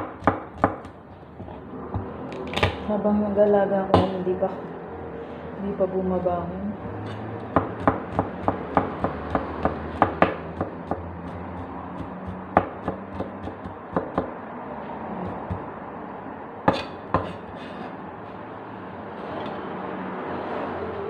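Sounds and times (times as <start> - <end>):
cleaver chopping on wooden block: 0.0 - 2.8, 7.1 - 14.3, 15.2 - 15.7.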